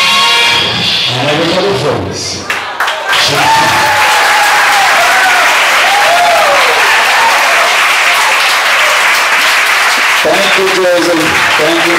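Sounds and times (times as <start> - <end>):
crowd applauding and cheering: 2.4 - 11.9
voices whooping: 3.2 - 8.6.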